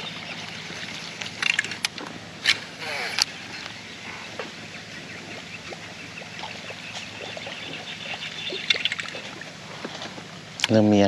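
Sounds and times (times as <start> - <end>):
water trickling and dripping: 5.2 - 10.2.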